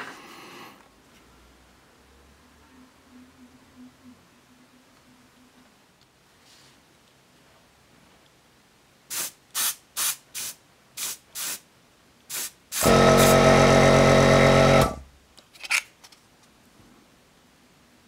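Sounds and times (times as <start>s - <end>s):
airbrush spraying hisses: 9.1s - 11.6s, 12.3s - 13.3s
air compressor motor humming: 12.8s - 15.0s.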